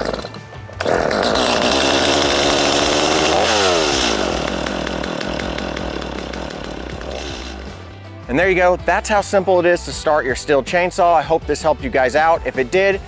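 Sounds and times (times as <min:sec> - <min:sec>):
starter cord pull: 0:00.0 - 0:07.8
chainsaw engine revving: 0:00.0 - 0:08.0.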